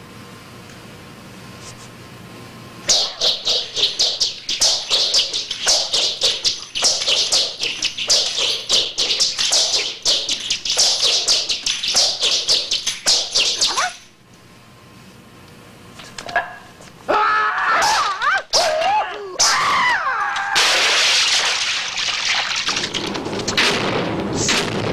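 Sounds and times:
nunchaku whooshing swishes: 0:02.9 - 0:14.1
man's battle cries: 0:17.1 - 0:20.6.

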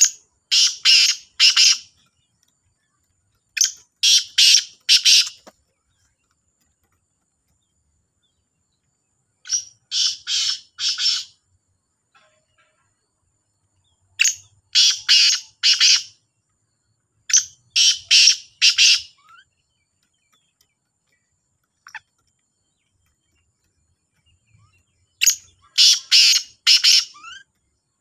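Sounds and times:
francolin calling: 0:00.0 - 0:02.2, 0:02.8 - 0:05.5, 0:09.4 - 0:11.4, 0:14.2 - 0:16.2, 0:17.3 - 0:19.6, 0:24.2 - 0:27.8.

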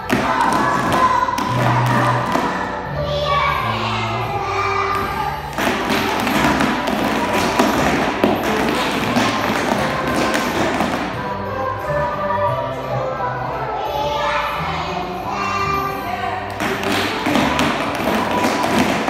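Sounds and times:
children's feet stamping on floor: 0:04.9 - 0:11.1, 0:16.6 - 0:19.0.

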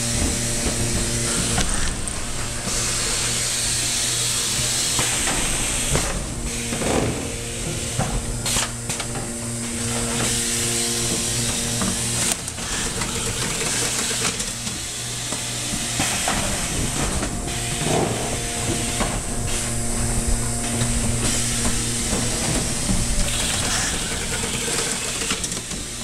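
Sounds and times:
motor hum: 0:00.0 - 0:26.0
machine clacking: 0:12.2 - 0:14.9, 0:22.0 - 0:26.0.

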